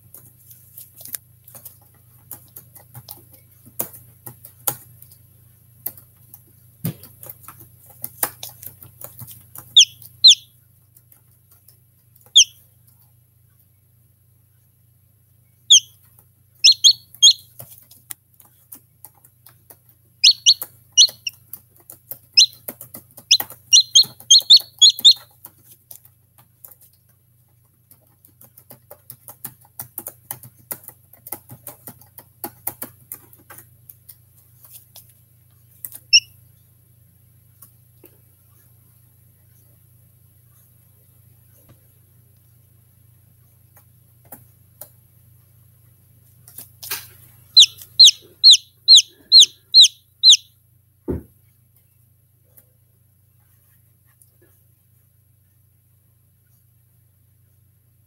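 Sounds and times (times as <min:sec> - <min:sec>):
chick peeping: 0:09.7 - 0:10.5, 0:12.3 - 0:12.6, 0:15.7 - 0:16.0, 0:16.6 - 0:17.6, 0:20.2 - 0:21.4, 0:22.3 - 0:25.3, 0:47.5 - 0:50.5.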